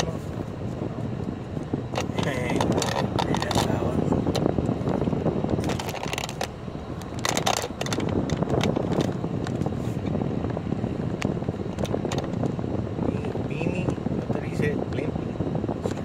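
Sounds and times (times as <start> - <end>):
slow car rumble: 0.0 - 16.0
wind on microphone: 0.0 - 16.0
light clicks and rattles: 1.9 - 4.5.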